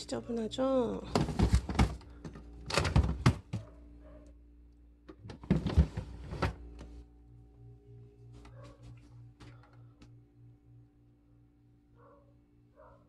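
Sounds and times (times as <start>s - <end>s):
plastic freezer drawers sliding: 1.1s - 3.6s, 5.2s - 6.6s.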